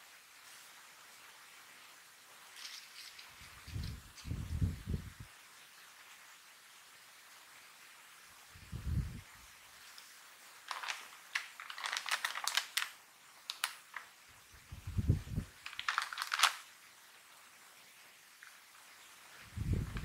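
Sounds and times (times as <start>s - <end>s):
crisp bag crinkling: 2.5s - 4.2s, 9.8s - 14.2s, 15.5s - 16.8s.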